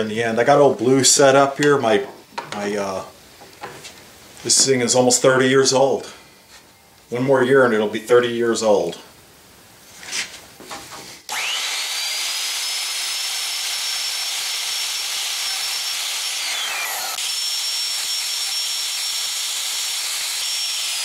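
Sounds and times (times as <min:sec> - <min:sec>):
router whining: 0:11.3 - 0:21.0.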